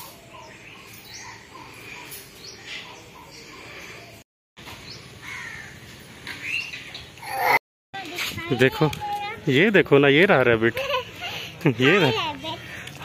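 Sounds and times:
crows cawing: 5.2 - 5.8.

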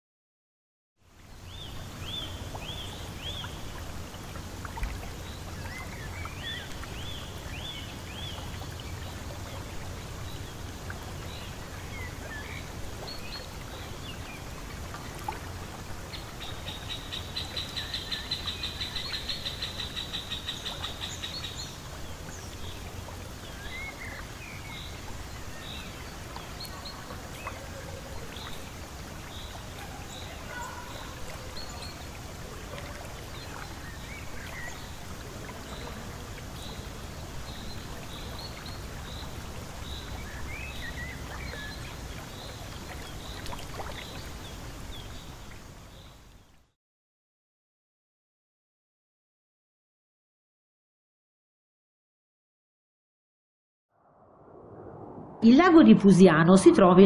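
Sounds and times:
steady low rumble: 54.0 - 57.0.

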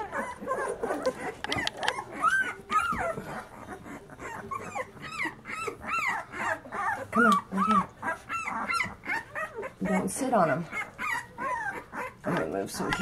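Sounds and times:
puppies squealing and whining: 0.0 - 13.0.

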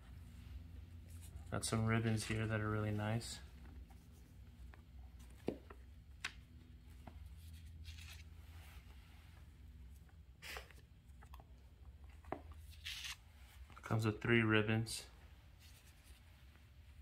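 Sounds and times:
low steady hum: 0.0 - 17.0
thin paper pages rustling: 7.3 - 8.9, 12.6 - 13.6.

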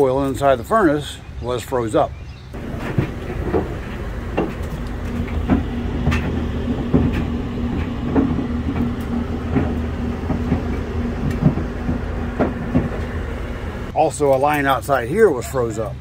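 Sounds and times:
irregular clicks and ticks: 2.6 - 13.2
air handler humming: 2.6 - 15.3.

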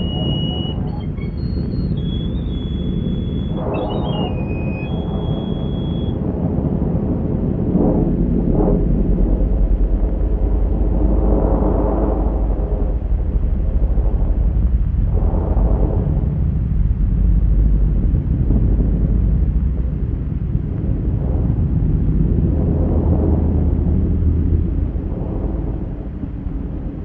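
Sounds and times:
rushing noise: 0.0 - 6.2
deep steady rumble: 0.0 - 27.0.

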